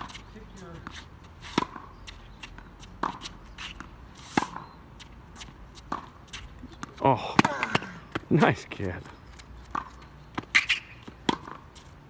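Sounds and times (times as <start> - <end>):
tennis ball struck by rackets: 0.0 - 2.0, 3.0 - 4.7, 5.4 - 8.3, 9.7 - 11.7
footsteps scuffing on court: 0.0 - 7.0.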